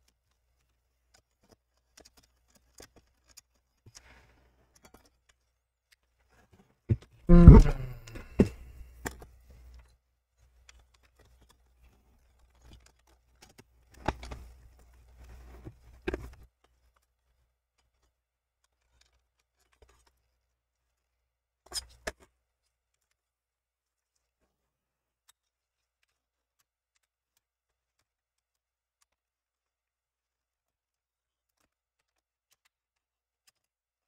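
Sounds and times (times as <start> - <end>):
plastic and metal parts rubbing: 6.3 - 8.6.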